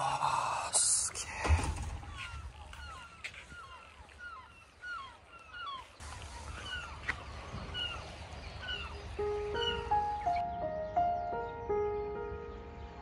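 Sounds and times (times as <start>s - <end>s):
birds calling: 0.0s - 13.0s.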